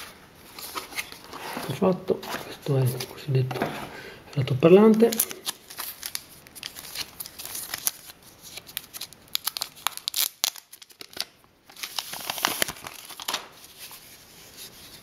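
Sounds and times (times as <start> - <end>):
plastic film crinkling: 4.8 - 15.0.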